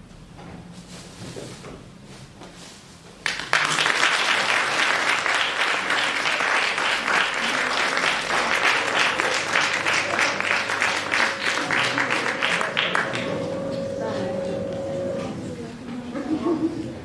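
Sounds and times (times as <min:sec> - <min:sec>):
audience applauding: 0:03.2 - 0:13.8.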